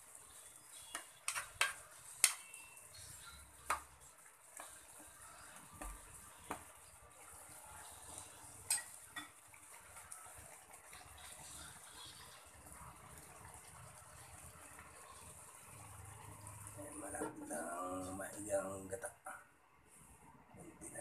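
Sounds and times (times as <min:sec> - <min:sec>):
simmering pan hiss: 0:00.0 - 0:21.0
metal spatula clinking on wok: 0:08.7 - 0:09.3.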